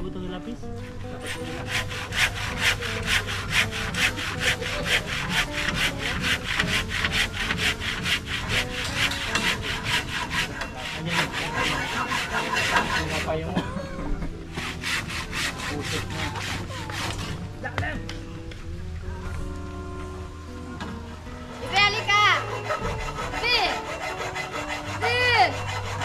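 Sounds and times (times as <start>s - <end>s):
handsaw cutting timber: 0.9s - 13.6s, 14.5s - 17.5s, 21.5s - 26.0s.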